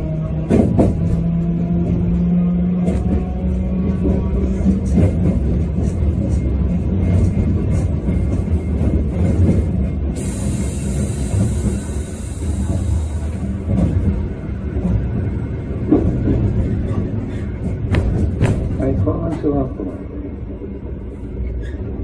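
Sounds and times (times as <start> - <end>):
streetcar wheels rumbling: 0.0 - 22.0
high hiss: 10.2 - 13.4.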